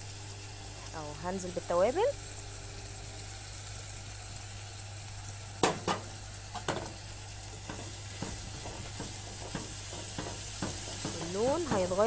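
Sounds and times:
meat sizzling in a pot: 0.0s - 12.0s
spatula knocking on pot: 7.6s - 12.0s.

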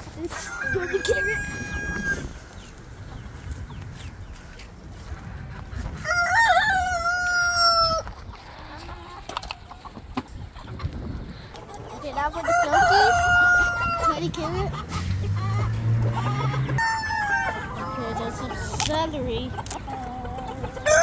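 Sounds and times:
rooster crowing: 6.0s - 8.0s, 16.8s - 18.2s.

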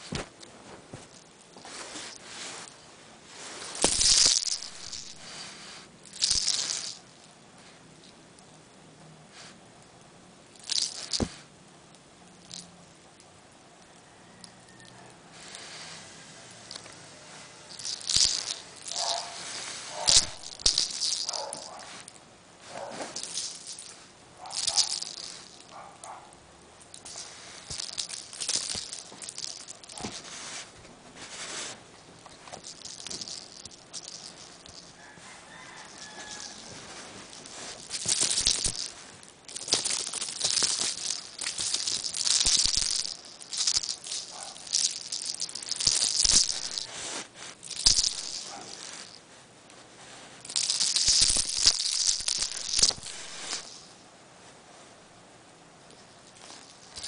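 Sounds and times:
dry rustling and scratching: 0.0s - 7.0s, 16.7s - 53.9s, 55.9s - 57.0s.

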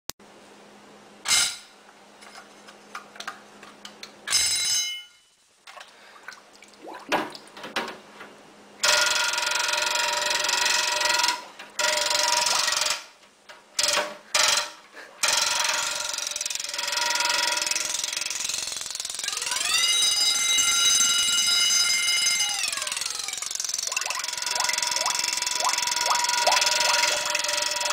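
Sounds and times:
alarm bell ringing underwater: 4.3s - 5.3s, 8.8s - 13.0s, 19.4s - 27.9s.

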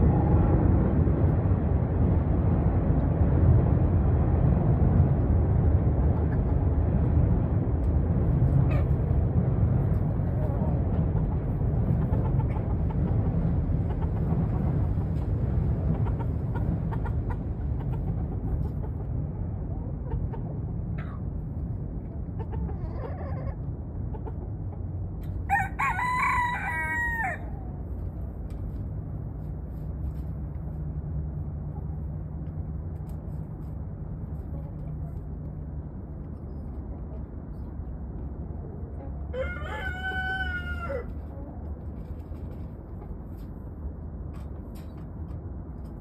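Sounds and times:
steady low rumble: 0.0s - 46.0s
rooster crowing: 25.5s - 27.6s, 39.3s - 41.2s.

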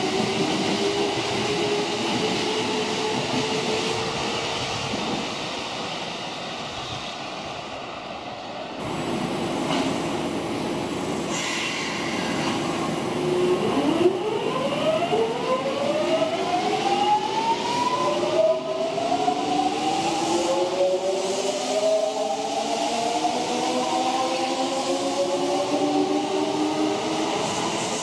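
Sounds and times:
train hiss: 8.8s - 13.2s.

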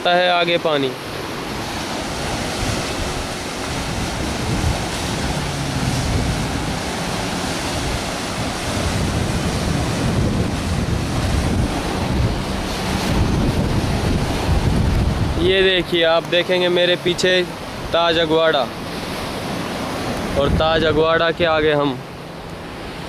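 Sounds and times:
surf breaking over rocks: 0.0s - 23.0s
wind rumbling on microphone: 1.2s - 16.6s, 18.9s - 21.8s.

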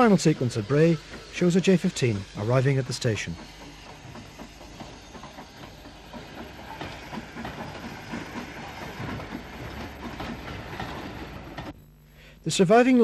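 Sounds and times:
steam hissing: 0.0s - 11.8s
train wheels clattering over rail joints: 0.0s - 11.8s.

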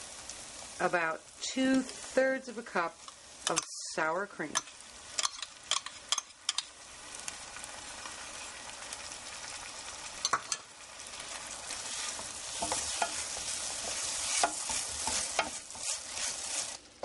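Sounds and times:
sauce sizzling in frying pan: 0.0s - 17.0s
utensils clicking against cup and pan: 3.0s - 3.8s, 4.5s - 6.7s, 12.2s - 16.0s
wooden spoon stirring and scraping: 11.1s - 17.0s.

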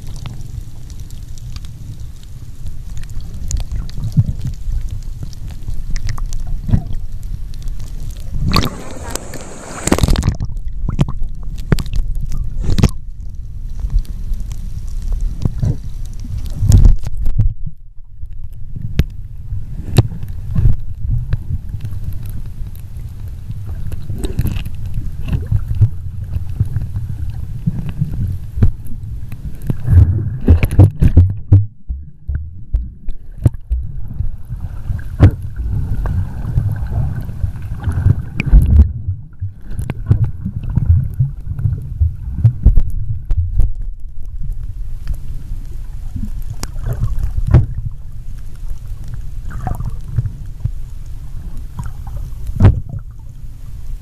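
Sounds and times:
underwater rumble and gurgling: 0.0s - 54.0s.

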